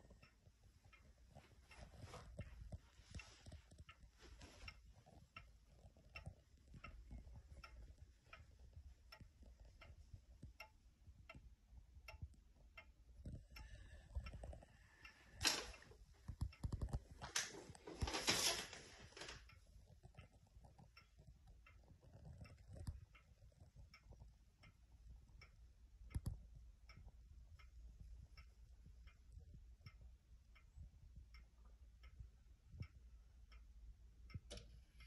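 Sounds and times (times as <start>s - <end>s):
wall clock ticking: 0.0s - 35.0s
rustling noise: 1.3s - 5.2s, 15.4s - 19.5s.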